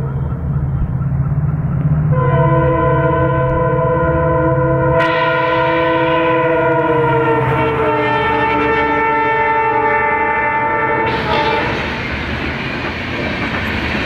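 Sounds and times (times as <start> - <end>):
locomotive engine rumbling: 0.0 - 14.0
multi-tone train horn: 2.1 - 12.0.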